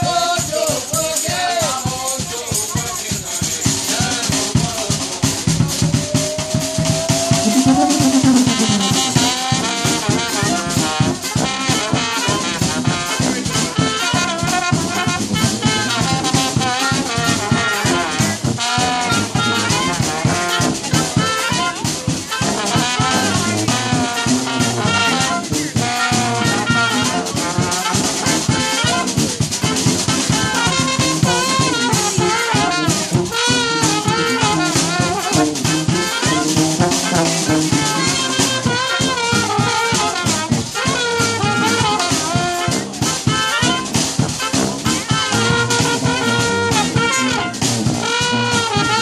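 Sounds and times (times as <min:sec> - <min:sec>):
steady drum beat: 0:00.0 - 0:49.0
trumpet: 0:03.8 - 0:49.0
trombone: 0:03.9 - 0:49.0
clarinet: 0:05.6 - 0:43.8, 0:44.4 - 0:49.0
sousaphone: 0:06.4 - 0:09.5.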